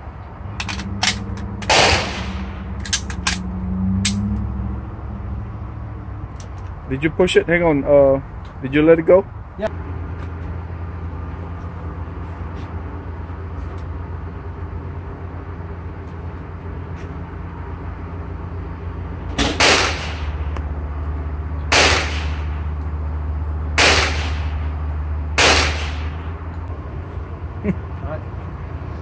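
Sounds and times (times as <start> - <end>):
steady low hum: 0.0 - 29.0
suppressed rifle shots: 1.0 - 2.5, 19.4 - 20.4, 21.7 - 22.5, 23.8 - 24.6, 25.4 - 26.2.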